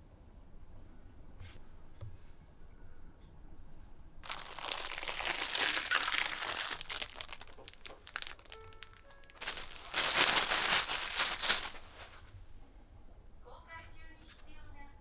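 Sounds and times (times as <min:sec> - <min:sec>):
plastic wrapping crinkling: 0:04.2 - 0:12.3.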